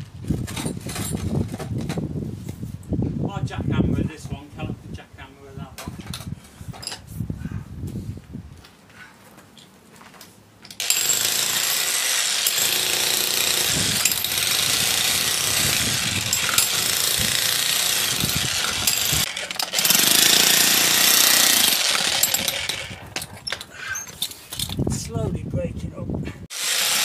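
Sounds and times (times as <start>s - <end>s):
demolition hammer on gravel: 10.8s - 23.6s.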